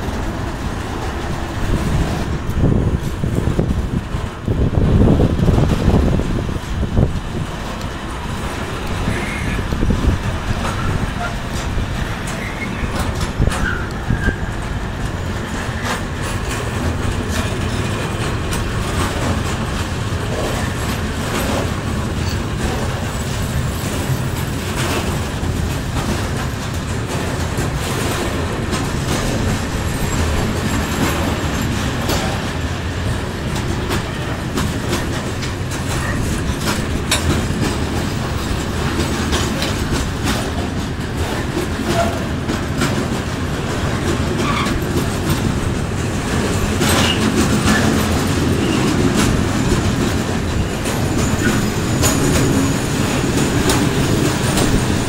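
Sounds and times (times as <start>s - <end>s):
train wheels rumbling on rails: 0.0s - 55.0s
wheels and couplings clattering: 0.0s - 55.0s.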